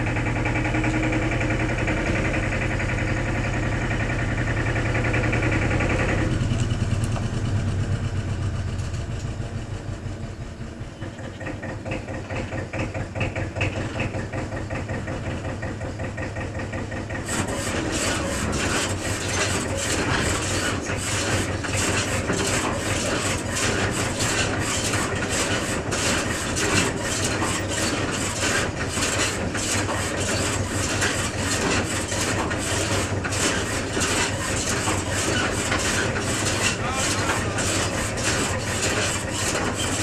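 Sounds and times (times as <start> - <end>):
tractor engine running: 0.0 - 40.0
conveyor rattling clatter: 11.0 - 40.0.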